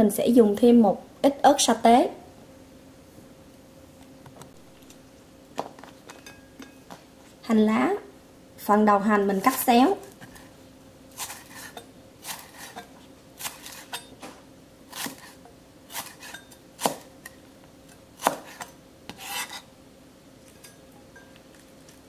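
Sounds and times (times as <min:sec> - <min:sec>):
knife slicing on cutting board: 0:11.2 - 0:14.1, 0:14.9 - 0:17.1, 0:18.2 - 0:19.7.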